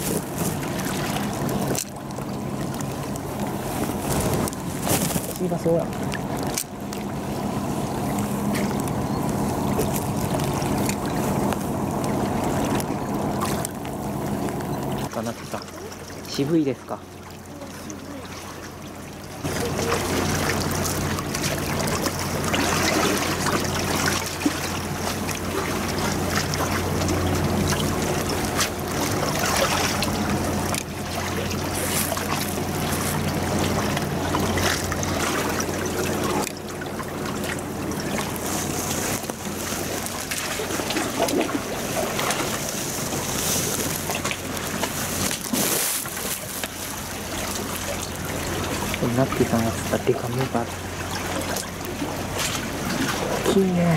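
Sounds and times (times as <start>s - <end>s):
engine droning: 0.0s - 53.9s
water lapping against seawall: 0.0s - 53.9s.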